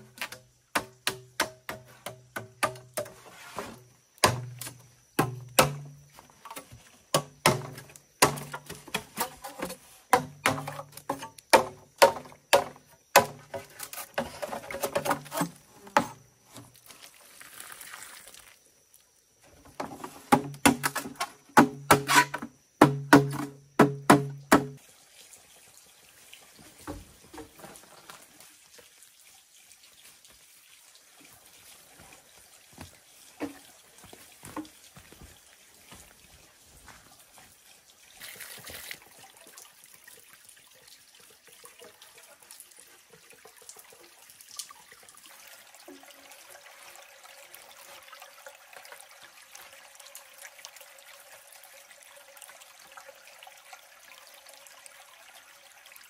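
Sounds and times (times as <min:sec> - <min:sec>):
sharp chopping strikes on bamboo: 0:00.2 - 0:03.1, 0:04.2 - 0:06.0, 0:07.1 - 0:09.0, 0:10.1 - 0:13.4, 0:21.6 - 0:22.2, 0:22.8 - 0:24.8
faint running water: 0:01.7 - 0:20.4, 0:24.7 - 0:56.0.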